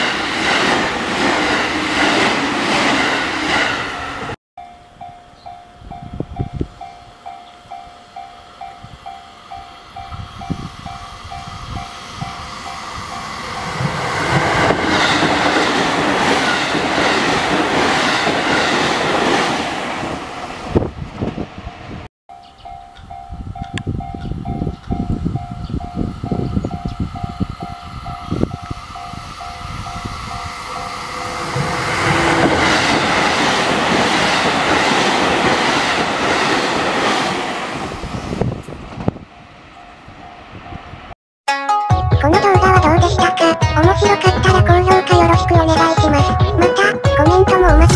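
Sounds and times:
train wheels rushing on rail: 0.0 - 4.4, 8.8 - 22.1, 23.6 - 39.7
train wheels clattering on rails: 11.4 - 19.6.

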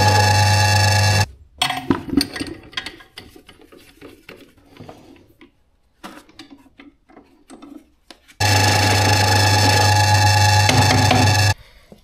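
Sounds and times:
loud steady hum: 0.0 - 1.3, 8.4 - 11.6.

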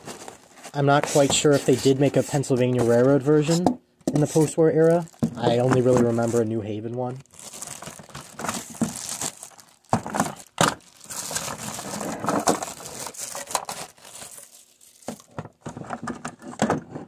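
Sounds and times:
plastic bag crinkling: 4.2 - 15.8.

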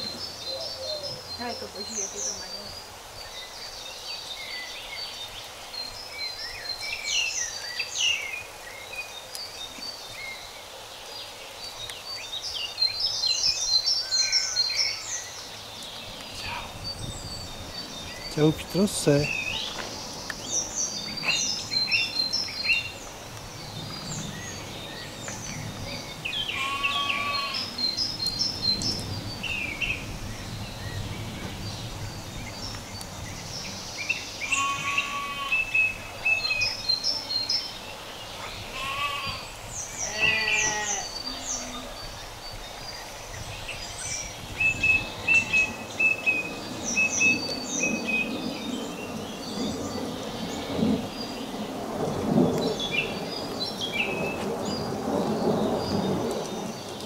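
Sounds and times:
small birds chirping: 0.0 - 57.0
farm animals bleating: 26.5 - 27.7, 34.5 - 35.7, 38.7 - 41.9.

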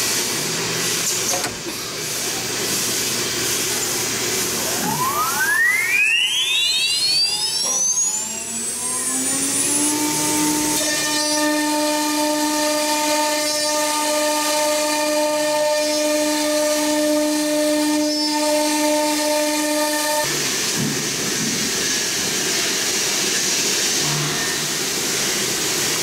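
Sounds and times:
router spindle high whine: 4.4 - 14.2.

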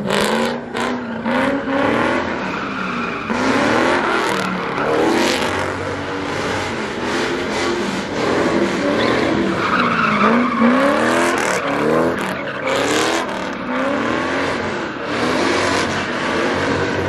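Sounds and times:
car engine revving: 0.0 - 17.0
tyres squealing: 8.8 - 16.2.

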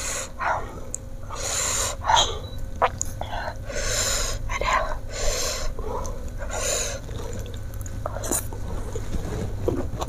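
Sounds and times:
sharp hissing breaths: 1.3 - 2.5, 3.4 - 4.4.

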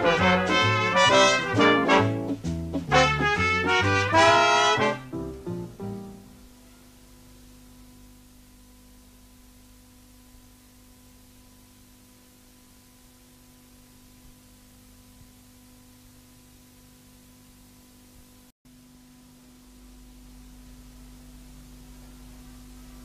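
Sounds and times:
brass band playing: 0.0 - 6.1
faint steady hum and hiss: 0.0 - 23.0.

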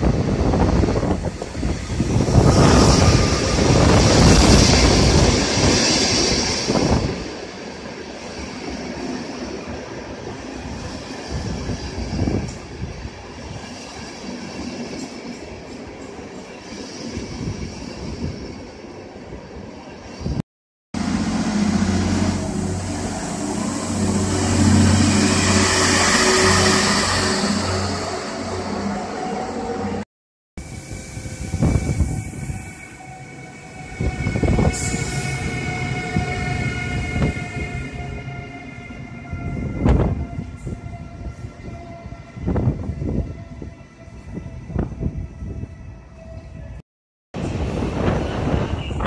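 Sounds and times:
rolling train coaches: 0.0 - 20.4, 21.0 - 30.0, 30.6 - 46.8, 47.4 - 49.0
train passing with electric hum: 0.0 - 20.4, 21.0 - 30.0, 30.6 - 46.8, 47.4 - 49.0
electric locomotive with hiss: 30.6 - 37.6.

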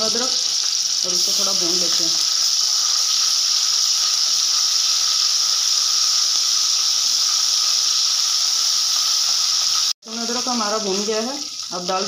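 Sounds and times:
paste sizzling in hot oil: 0.0 - 12.0.

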